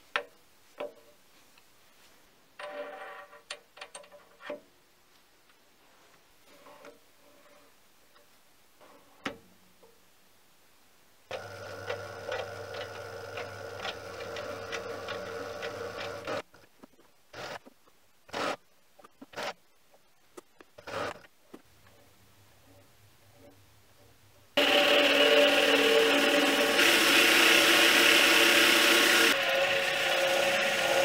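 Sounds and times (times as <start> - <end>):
lathe motor hum with ticking: 11.3 - 16.4, 24.6 - 31.0.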